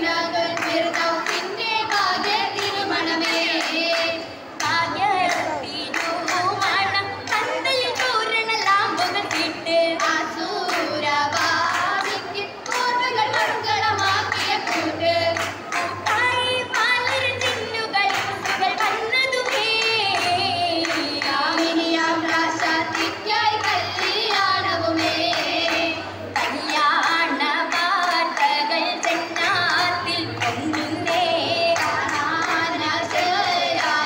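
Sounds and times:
girls singing together: 0.0s - 34.0s
rhythmic hand claps: 0.0s - 34.0s.

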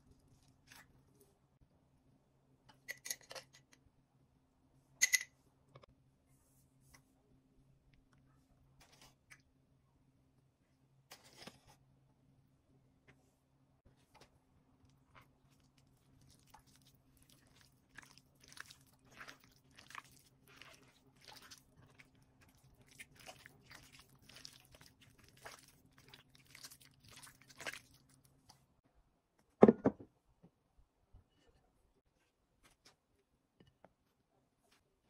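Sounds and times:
wet squelching of mixing by hand: 14.0s - 28.8s.

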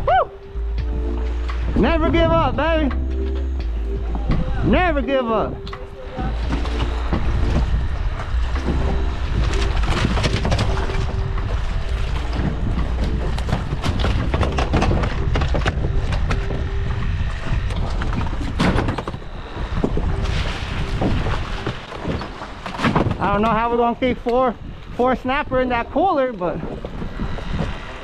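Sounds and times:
low hum: 0.0s - 28.0s
wind buffeting microphone: 0.0s - 28.0s
knocks and clatter on boat deck: 0.6s - 4.8s, 5.6s - 23.6s.

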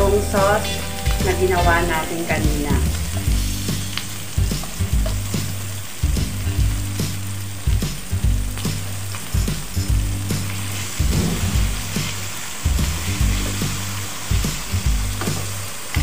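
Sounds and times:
food sizzling in a wok: 0.0s - 16.0s
spatula scraping and knocking on pan: 11.0s - 12.2s.

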